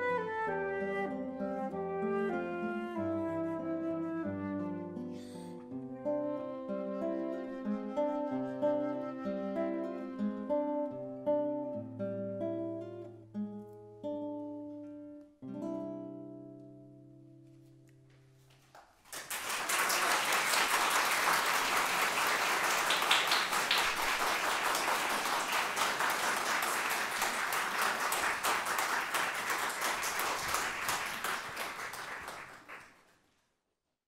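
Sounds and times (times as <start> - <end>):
audience applause: 19.0 - 33.1.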